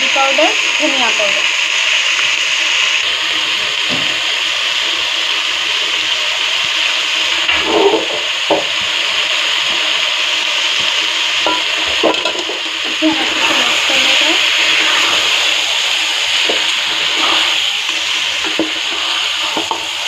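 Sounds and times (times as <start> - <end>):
meat sizzling in a pot: 0.0 - 20.0
spatula scraping a pot: 16.4 - 17.7, 18.4 - 20.0.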